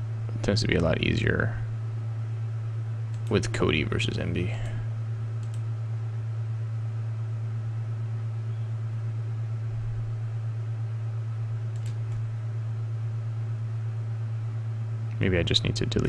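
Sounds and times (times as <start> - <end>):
low background hum: 0.0 - 16.0
faint clicks: 5.4 - 5.7, 11.7 - 12.2.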